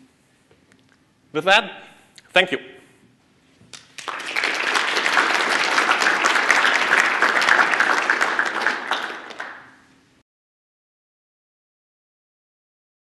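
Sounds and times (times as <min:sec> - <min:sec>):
audience applauding: 0:03.8 - 0:09.8.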